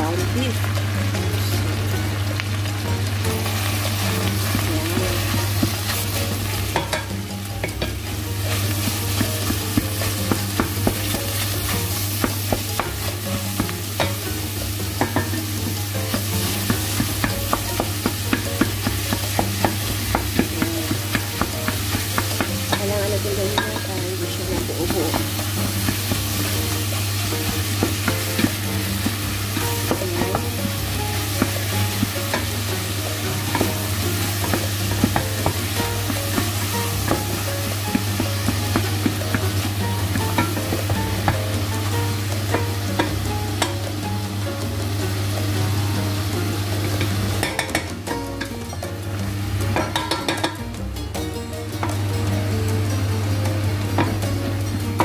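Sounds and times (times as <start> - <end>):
meat and onion sizzling in pot: 0.0 - 55.0.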